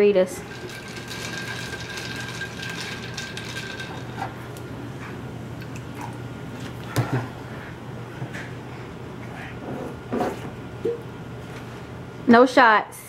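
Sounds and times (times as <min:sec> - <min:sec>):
liquid pouring into metal shaker: 0:00.4 - 0:04.4
cans and bottles clinking: 0:00.5 - 0:04.4.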